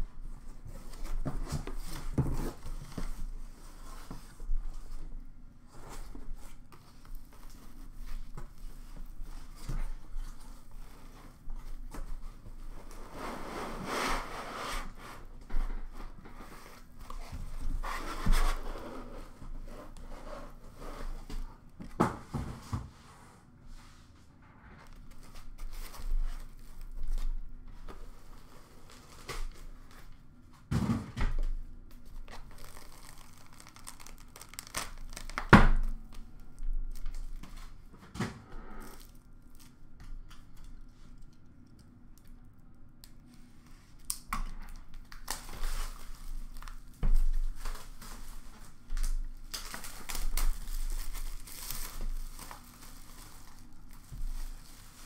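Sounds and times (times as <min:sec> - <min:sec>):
plastic wrap tearing and crinkling: 0:32.0 - 0:37.8, 0:44.0 - 0:55.0.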